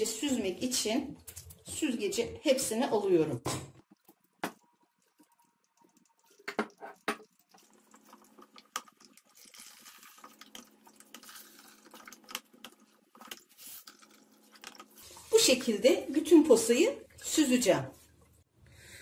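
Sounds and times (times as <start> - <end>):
liquid trickling and dripping: 3.8 - 15.3.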